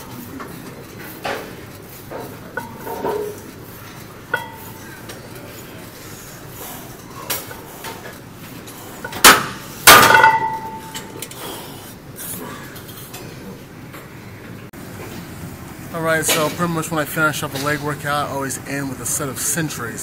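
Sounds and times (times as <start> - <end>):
weight plates clanking: 0.5 - 5.6, 7.0 - 11.3.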